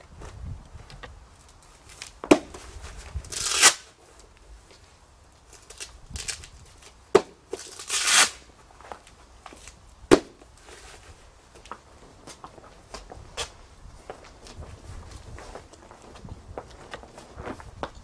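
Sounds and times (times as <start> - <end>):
velcro strap ripping open: 3.2 - 3.9, 5.6 - 6.9, 7.6 - 8.5.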